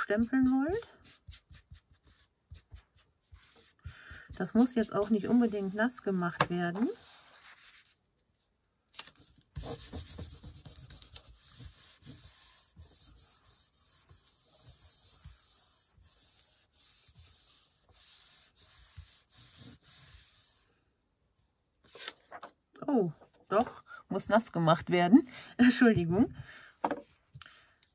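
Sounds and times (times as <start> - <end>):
hand rubbing over paper and fabric: 0.0 - 8.0, 9.3 - 20.7.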